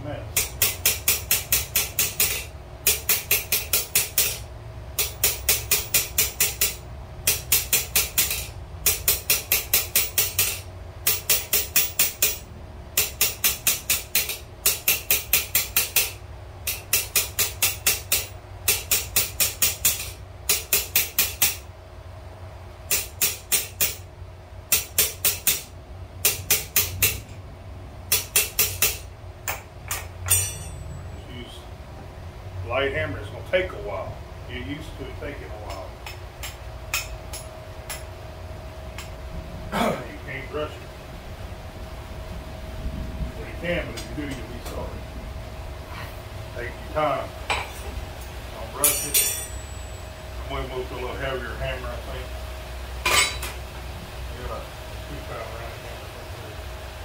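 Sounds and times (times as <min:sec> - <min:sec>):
hammer tapping on hot steel: 0:00.3 - 0:21.7, 0:22.9 - 0:24.1, 0:24.7 - 0:27.4, 0:28.1 - 0:30.9, 0:35.7 - 0:38.1, 0:48.8 - 0:50.0.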